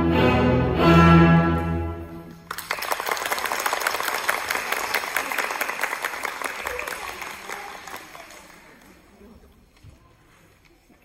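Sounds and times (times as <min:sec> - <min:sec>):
orchestral string music: 0:00.0 - 0:02.4
audience applause: 0:02.4 - 0:09.1.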